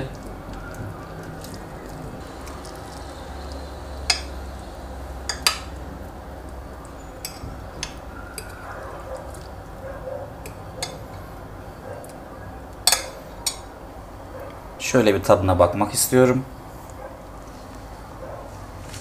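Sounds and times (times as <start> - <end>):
cutlery clinking on a plate: 12.8 - 13.6.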